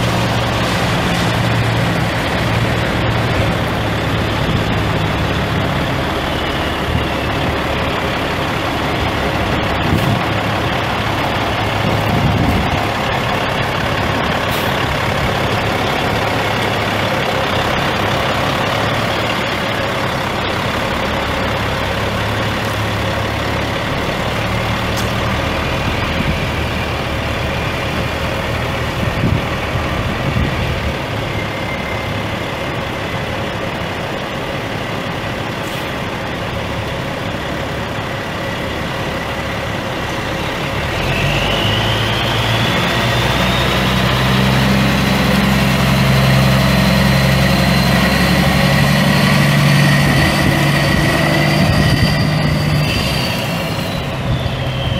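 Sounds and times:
diesel truck engine idling and revving: 0:00.0 - 0:54.9
high whine: 0:36.9 - 0:54.9.

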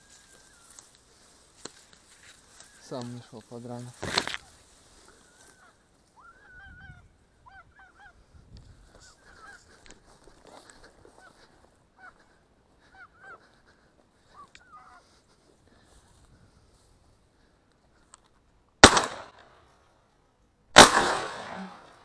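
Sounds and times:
geese honking: 0:05.2 - 0:08.2, 0:11.0 - 0:15.2.

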